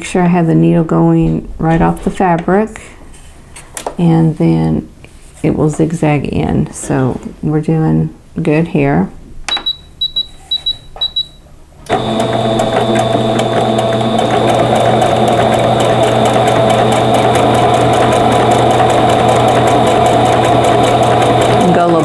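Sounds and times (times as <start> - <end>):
short high beeps: 9.5 - 11.4
sewing machine stitching: 11.9 - 22.0.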